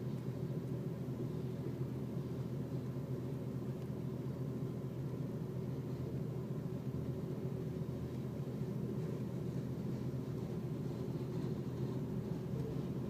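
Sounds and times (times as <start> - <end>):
freight train rumbling on rails: 4.0 - 13.0.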